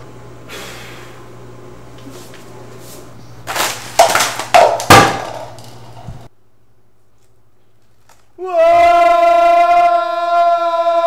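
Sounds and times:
steady low hum: 0.0s - 8.4s.

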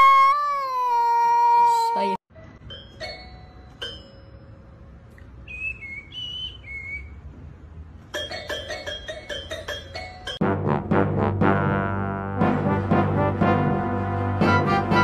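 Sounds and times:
whistle-like notes: 5.4s - 7.2s.

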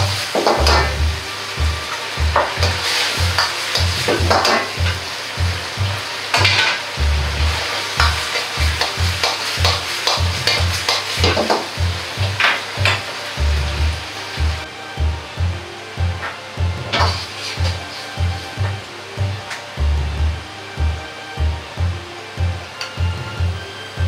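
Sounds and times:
metal ladle scraping a wok: 0.0s - 5.3s, 6.0s - 13.4s, 17.0s - 18.7s
steady low beat: 0.0s - 23.6s
sauce sizzling: 0.0s - 24.0s.

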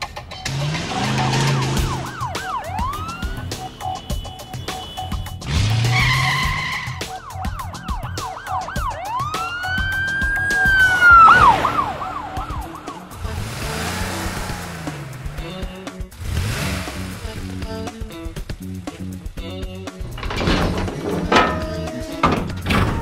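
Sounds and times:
light background music: 0.0s - 23.0s
police siren: 0.9s - 13.3s.

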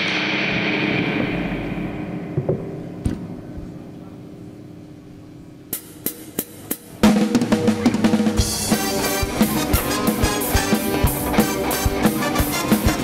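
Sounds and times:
drum fill: 0.0s - 4.6s, 5.7s - 13.0s
low tones: 0.0s - 12.5s
live band playing loud: 5.8s - 13.0s.

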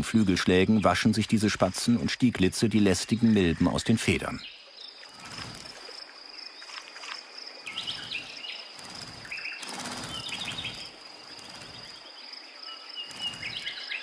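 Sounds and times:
bird chirps: 2.9s - 6.8s, 7.6s - 14.0s
high insect-like whine: 4.7s - 14.0s
wing flutter: 5.0s - 14.0s.

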